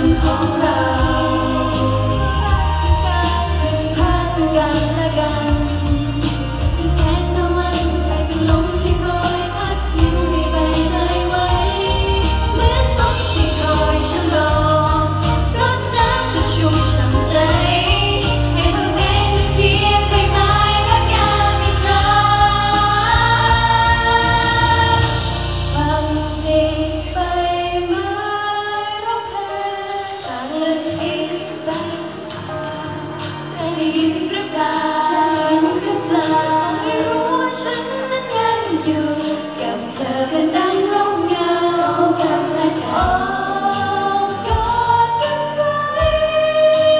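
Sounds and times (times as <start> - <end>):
backing track with heavy bass: 0.0 - 28.7
women singing pop song: 0.0 - 46.9.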